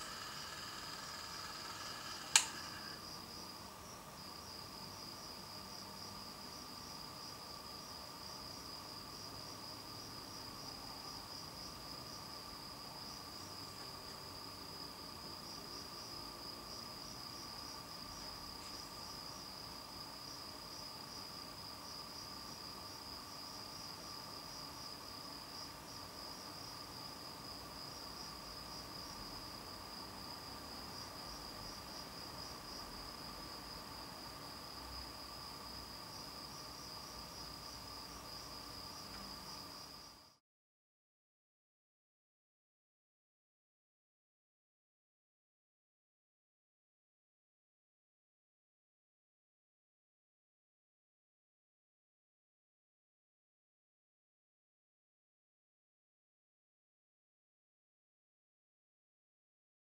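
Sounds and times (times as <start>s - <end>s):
crickets chirping: 0.0s - 40.4s
sharp click: 2.2s - 2.9s.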